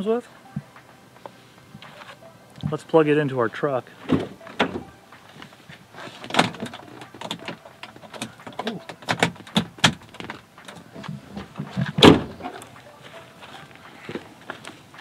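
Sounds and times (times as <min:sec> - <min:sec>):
loud thump: 0:11.8 - 0:12.4.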